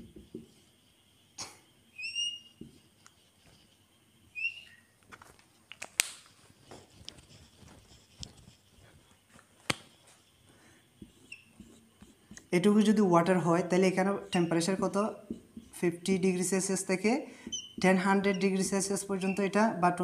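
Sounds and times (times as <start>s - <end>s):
whiteboard marker squeaking: 1.9s - 5.0s, 6.6s - 8.9s, 9.7s - 16.4s, 17.4s - 19.8s
scratchy marker strokes: 2.0s - 4.9s, 6.4s - 16.4s, 17.5s - 19.6s.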